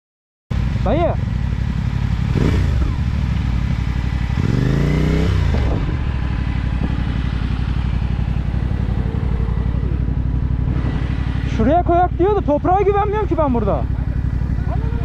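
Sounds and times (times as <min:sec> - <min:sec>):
motorcycle engine idling: 0:00.5 - 0:15.0.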